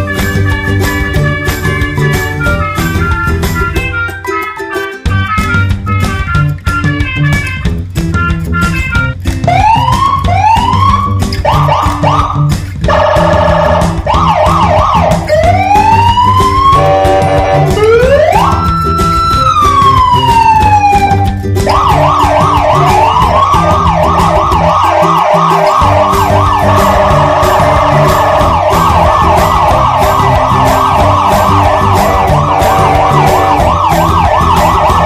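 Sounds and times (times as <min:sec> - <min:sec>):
background music with steady beat: 0:00.0 - 0:35.0
electronic siren wailing and yelping: 0:09.4 - 0:35.0.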